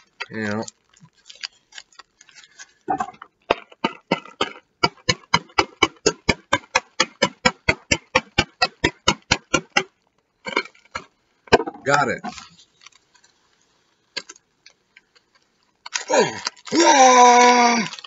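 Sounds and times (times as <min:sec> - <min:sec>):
wrapping rustling: 0:00.0 - 0:03.1, 0:11.9 - 0:18.0.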